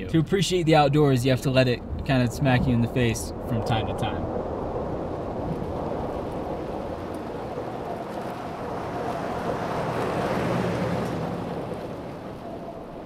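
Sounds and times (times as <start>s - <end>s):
tyres hissing on wet road: 6.6s - 12.7s.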